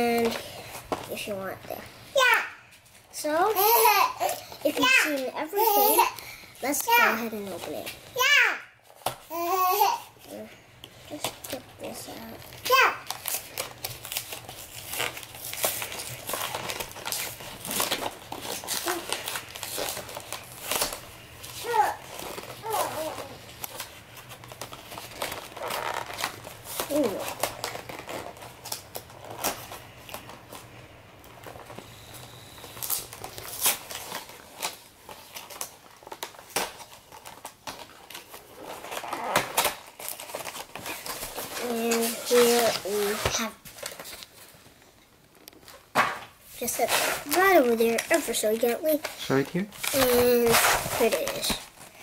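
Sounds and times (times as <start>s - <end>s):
plastic packaging crinkling: 10.8s - 52.0s
cardboard box crackling and snapping: 11.2s - 30.7s, 32.8s - 41.7s, 49.0s - 51.9s.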